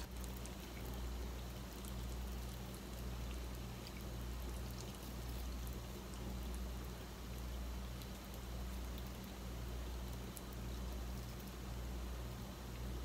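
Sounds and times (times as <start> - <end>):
hot sugar syrup crackling: 0.0 - 13.0
low hum: 0.0 - 13.0
tiny ticks: 10.0 - 11.7.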